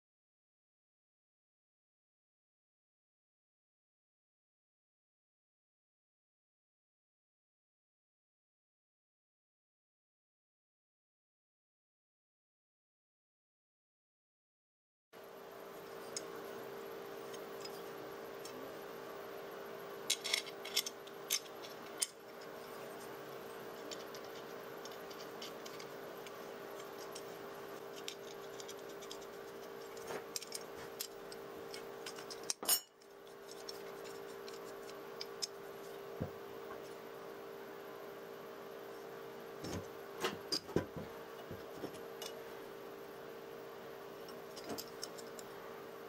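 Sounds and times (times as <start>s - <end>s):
steady hum: 15.2s - 46.0s
steel parts clinking: 20.1s - 34.6s.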